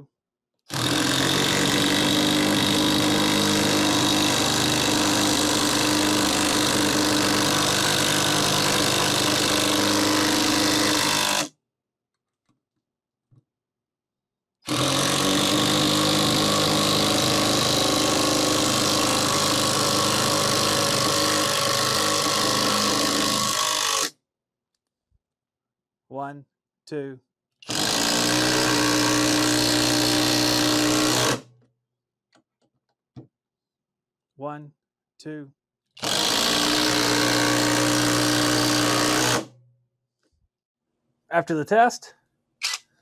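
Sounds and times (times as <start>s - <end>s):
impact driver driving screws: 0.7s - 11.5s, 14.6s - 24.1s, 27.6s - 31.5s, 36.0s - 39.5s, 42.6s - 42.9s.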